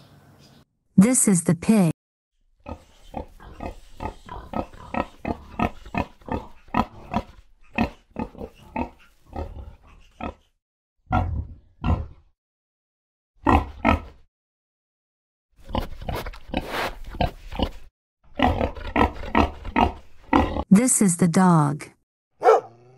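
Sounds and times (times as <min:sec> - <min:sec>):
pigs grunting: 0:02.6 - 0:12.3, 0:13.4 - 0:14.3, 0:15.6 - 0:20.7.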